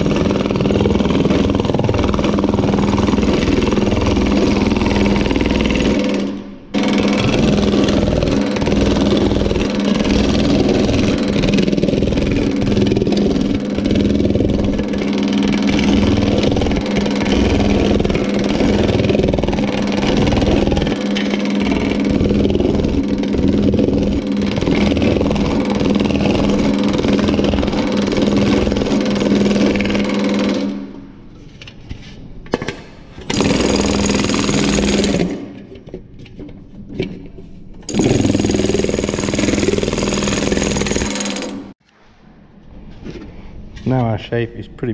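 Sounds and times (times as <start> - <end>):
power hammer pounding sheet metal: 0.0 - 31.1, 33.2 - 35.6, 37.9 - 41.8
motor hum: 0.0 - 31.2.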